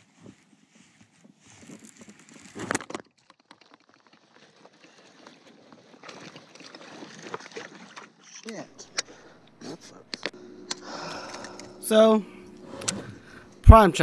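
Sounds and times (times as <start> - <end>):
small clicks and rustles: 0.0 - 6.2.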